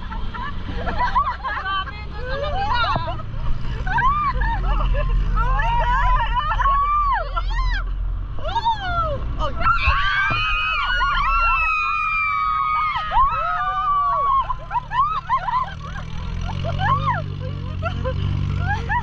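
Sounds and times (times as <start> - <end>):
jeep engine rumble: 0.0 - 19.0
people screaming and whooping: 3.8 - 19.0.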